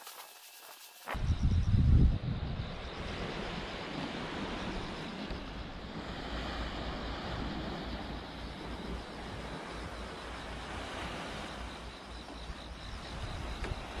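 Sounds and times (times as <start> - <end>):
wind buffeting microphone: 1.1 - 14.0
sea surf washing on shore: 2.9 - 14.0.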